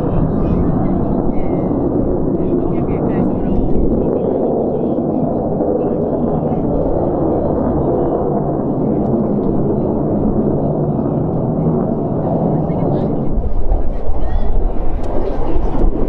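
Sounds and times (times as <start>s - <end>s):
jet engines rumbling in flight: 0.0s - 16.0s.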